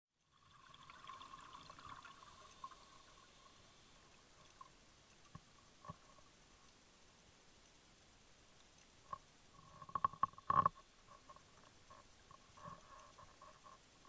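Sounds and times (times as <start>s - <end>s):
faint underwater hiss: 0.2s - 14.0s.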